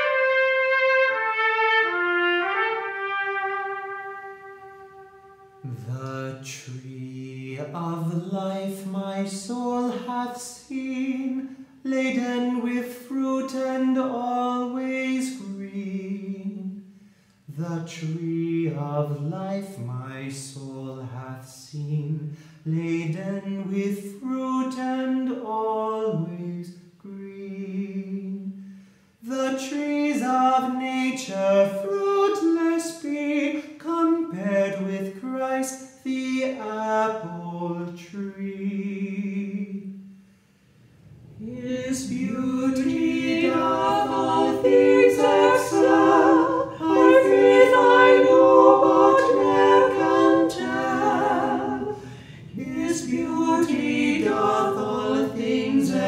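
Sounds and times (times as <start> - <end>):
voices singing in harmony: 0.0 - 16.7, 40.8 - 56.0.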